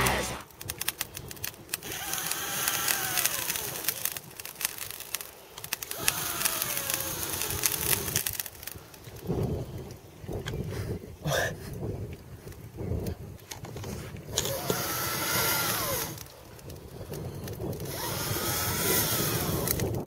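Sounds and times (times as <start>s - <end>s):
charcoal crackling clicks: 0.0s - 10.7s, 11.7s - 20.0s
man blowing onto charcoal: 13.9s - 20.0s.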